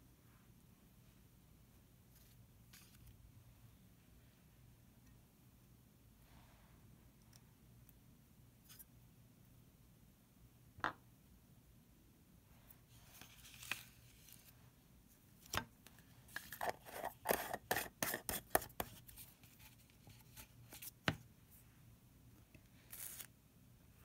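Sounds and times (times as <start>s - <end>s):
plastic lid clicks and scrapes: 16.4s - 19.0s.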